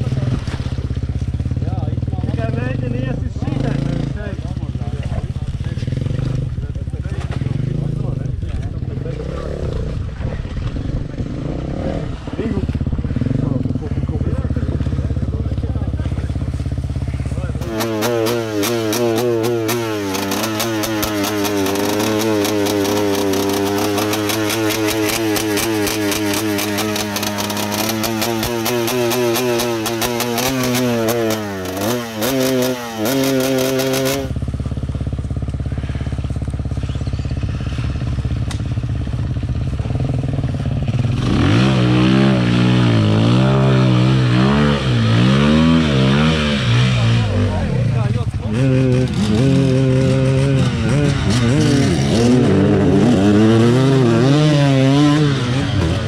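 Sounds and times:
motorcycle engine revving: 0.0 - 56.0
crackling clatter: 14.6 - 34.2.

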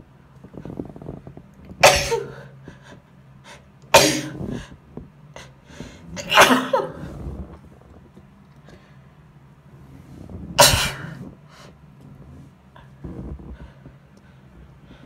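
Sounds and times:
woman sneezing: 1.8 - 2.5.

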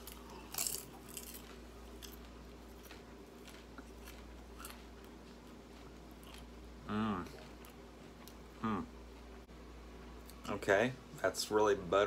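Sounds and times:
person chewing popcorn: 0.0 - 9.4.

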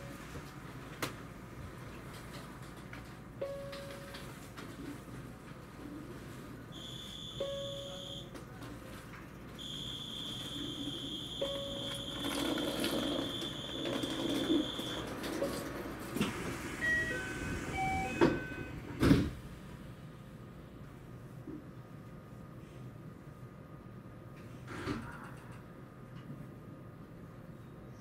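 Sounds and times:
high electronic door beep: 6.8 - 8.3, 9.6 - 15.6, 16.8 - 19.1
sliding doors thudding shut: 12.2 - 19.4.

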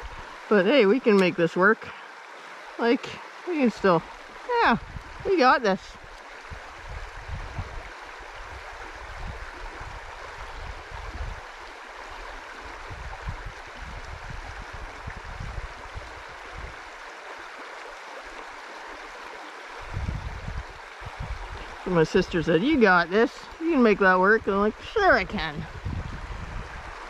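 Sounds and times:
river water running over rocks: 0.0 - 27.0
low rumbles on microphone: 4.7 - 5.3, 5.9 - 11.4, 12.7 - 16.8, 19.8 - 21.9, 25.3 - 27.0.

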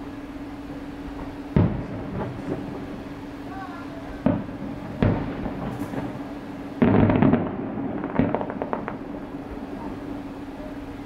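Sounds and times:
steady low hum: 0.0 - 11.0
fireworks crackling: 1.2 - 11.0
fireworks shells bursting: 4.2 - 10.3.

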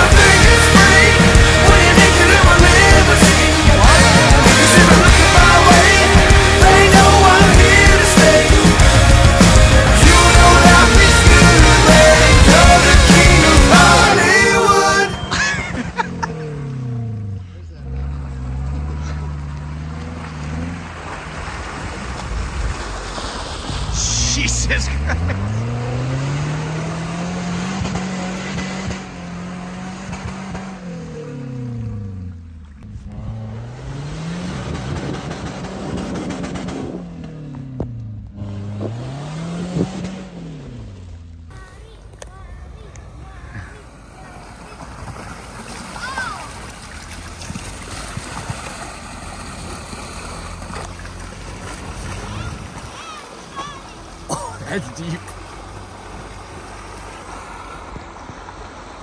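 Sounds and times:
off-road vehicle engine revving: 0.0 - 59.0
tyres churning through muddy water: 0.0 - 59.0
water sloshing and splashing: 17.9 - 24.2, 40.2 - 59.0.

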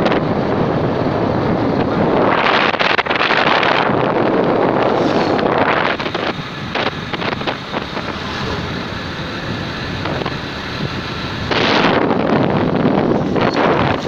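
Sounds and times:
wind buffeting microphone: 0.0 - 14.0.

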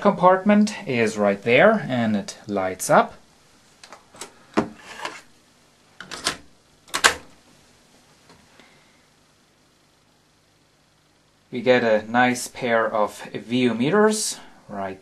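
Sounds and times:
cassette door plastic clicks: 6.0 - 7.3.

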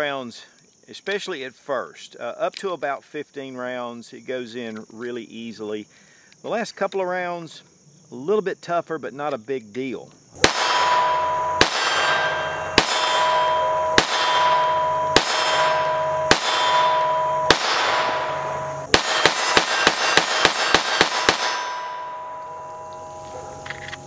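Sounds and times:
pistol shots: 10.4 - 22.6
steady ringing tone: 10.4 - 24.0.

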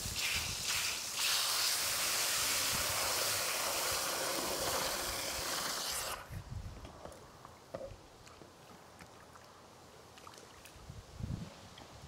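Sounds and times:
water jet hissing into soil: 0.0 - 6.3.

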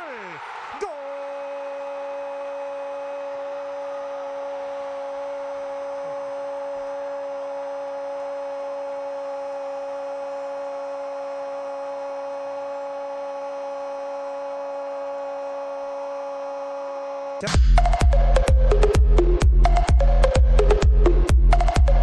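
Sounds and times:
commentator shouting goal: 0.0 - 2.6.

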